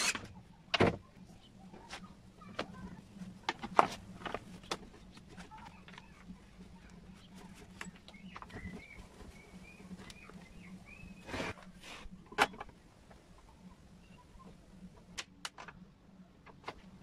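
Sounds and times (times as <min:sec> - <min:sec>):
steady low hum: 0:00.0 - 0:17.0
birds chirping: 0:04.4 - 0:11.8, 0:12.5 - 0:14.9
scraping rustle: 0:11.1 - 0:12.2.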